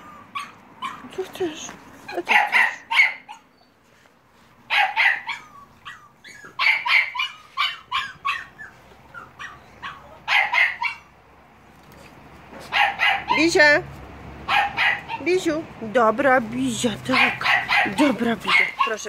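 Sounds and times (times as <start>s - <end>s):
puppies yapping and barking: 0.0s - 1.4s, 2.0s - 3.9s, 4.6s - 11.2s, 12.5s - 13.6s, 14.4s - 15.4s, 17.1s - 19.0s.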